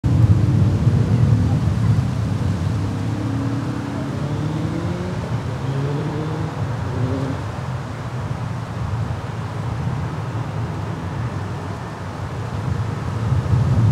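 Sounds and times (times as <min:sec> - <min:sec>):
diesel locomotive engine passing: 0:00.1 - 0:08.5.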